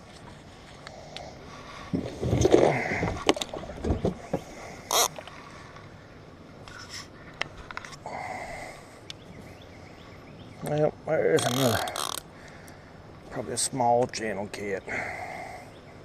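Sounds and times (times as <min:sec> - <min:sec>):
fishing rod scraping rumble: 0:00.3 - 0:05.2
fishing reel clicks: 0:11.4 - 0:12.2.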